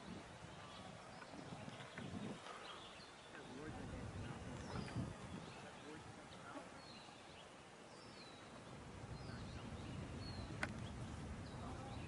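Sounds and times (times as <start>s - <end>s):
birds chirping faintly: 0.0s - 12.0s
low background noise: 0.0s - 12.0s.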